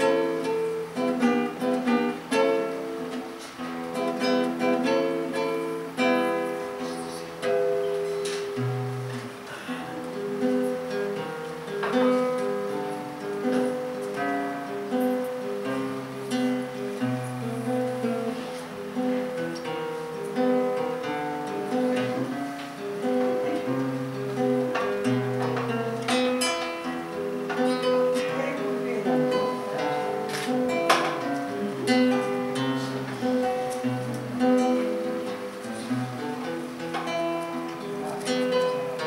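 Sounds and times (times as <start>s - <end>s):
classical guitar plucking: 0.0s - 39.0s.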